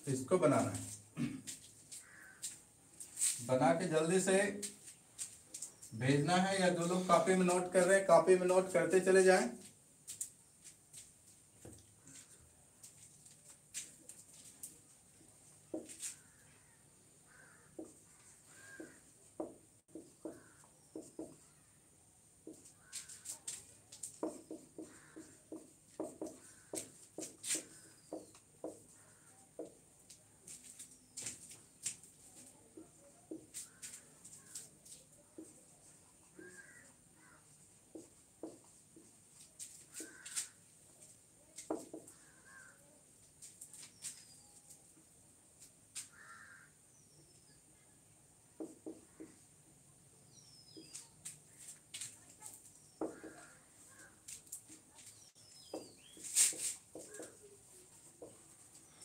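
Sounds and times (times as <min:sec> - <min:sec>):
marker writing on whiteboard: 0:17.4 - 0:21.5, 0:22.4 - 0:29.8, 0:36.6 - 0:39.1, 0:39.8 - 0:40.3, 0:48.6 - 0:49.4, 0:52.9 - 0:54.0, 0:55.5 - 0:58.6.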